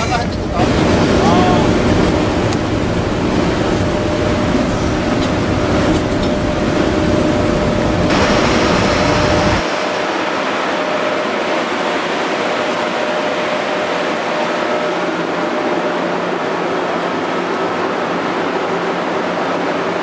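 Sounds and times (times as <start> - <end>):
low rumble: 0.0 - 9.7
locomotive mechanical hum: 0.0 - 20.0
rush of air: 0.4 - 15.9.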